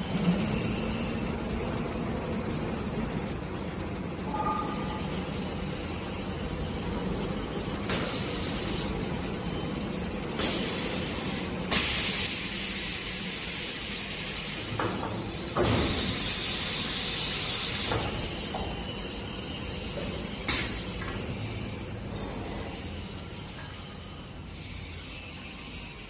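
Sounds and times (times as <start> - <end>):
steady machine hum: 0.0 - 11.8
air hissing: 10.4 - 14.8.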